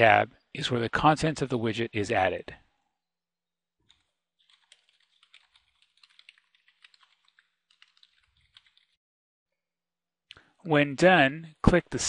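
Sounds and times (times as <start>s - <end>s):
typing on a computer keyboard: 3.9s - 9.0s.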